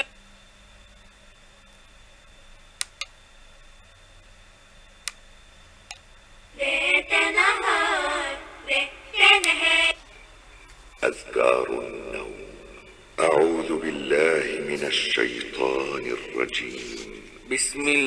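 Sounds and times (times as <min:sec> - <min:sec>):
high voice singing from speaker: 0:06.6 - 0:10.1.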